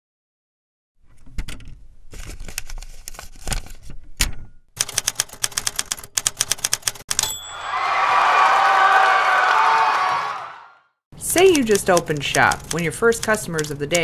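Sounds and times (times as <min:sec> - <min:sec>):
typewriter keys clacking: 0:04.8 - 0:07.4, 0:11.4 - 0:14.0
typewriter bell ring: 0:07.1 - 0:07.9.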